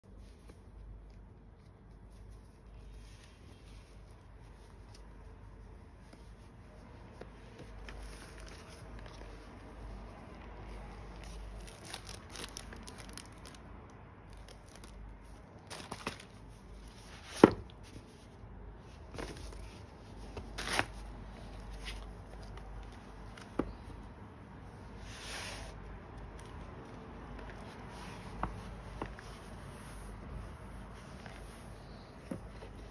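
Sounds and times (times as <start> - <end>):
packaging rustling: 11.1 - 13.6, 14.3 - 17.6.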